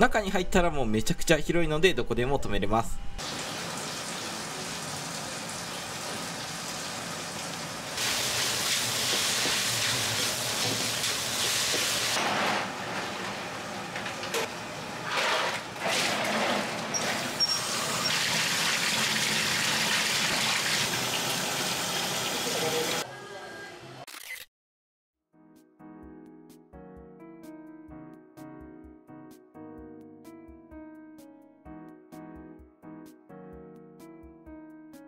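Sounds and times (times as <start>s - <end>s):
noodles boiling: 3.2s - 23.0s.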